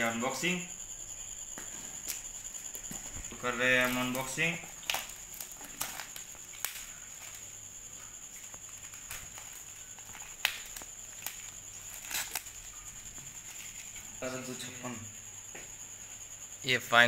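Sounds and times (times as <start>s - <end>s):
plastic wrap rustling and crackling: 1.6s - 14.2s.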